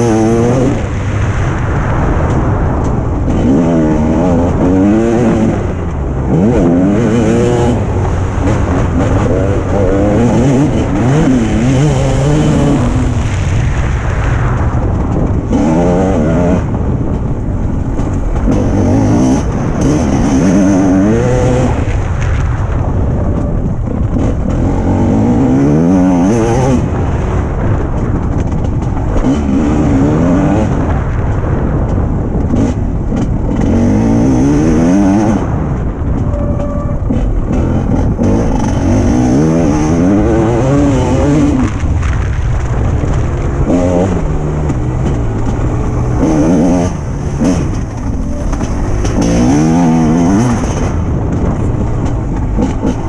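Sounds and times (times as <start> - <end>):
motocross bike engine revving: 0.0 - 1.2, 3.3 - 13.5, 15.3 - 17.1, 18.0 - 22.2, 23.3 - 27.6, 28.5 - 31.2, 32.5 - 53.0.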